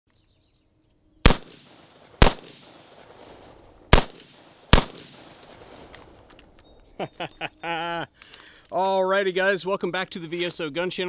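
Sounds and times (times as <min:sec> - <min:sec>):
rifle shots with echo: 0:01.2 - 0:06.4.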